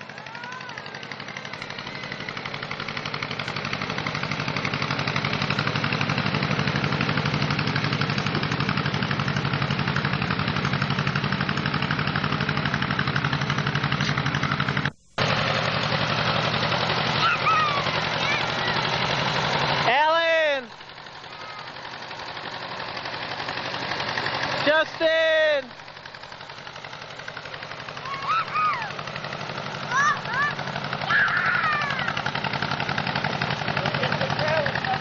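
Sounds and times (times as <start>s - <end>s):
tractor engine putter: 0.0s - 17.2s, 20.7s - 31.1s, 31.7s - 35.0s.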